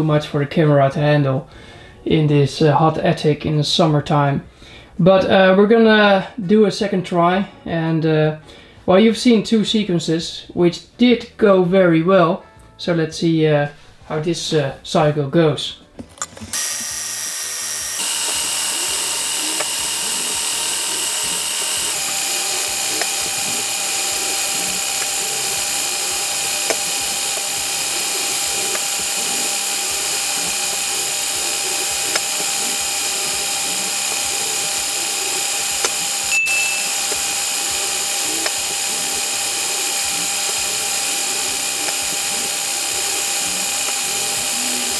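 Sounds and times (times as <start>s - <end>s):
high drill-like motor whine: 16.3s - 44.9s.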